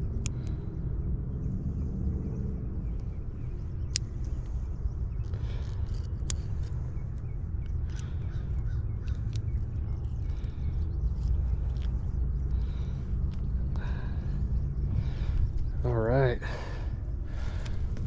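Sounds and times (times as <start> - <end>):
sharp clicks: 0.0 - 0.7, 3.8 - 13.8
wind buffeting microphone: 0.0 - 18.0.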